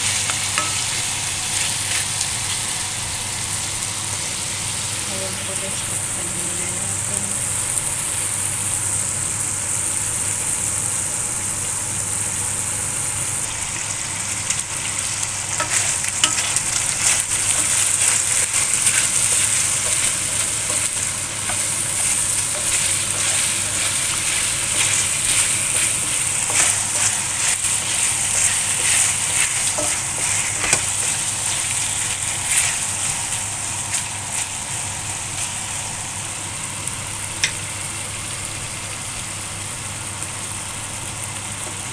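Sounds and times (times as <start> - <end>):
chicken sizzling in hot oil: 0.0 - 41.9
spatula scraping pan: 15.5 - 34.1.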